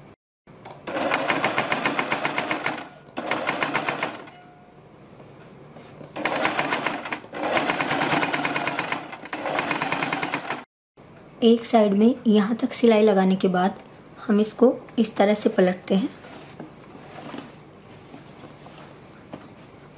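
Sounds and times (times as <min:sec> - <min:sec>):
sewing machine stitching: 0:00.9 - 0:04.3, 0:06.2 - 0:10.7.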